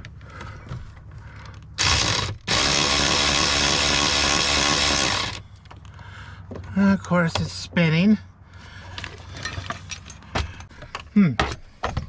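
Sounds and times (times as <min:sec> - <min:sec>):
electric ratchet motor whine: 0:01.8 - 0:05.4.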